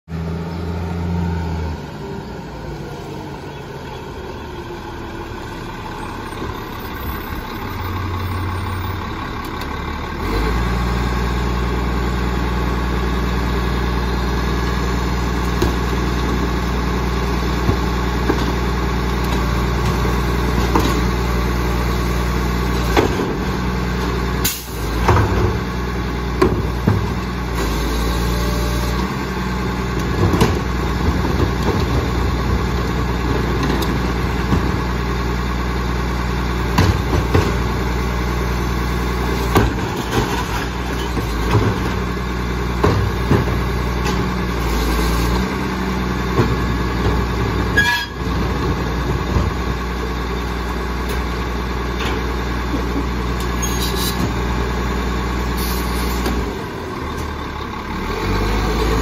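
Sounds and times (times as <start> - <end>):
garbage truck engine droning: 0.1 - 59.0.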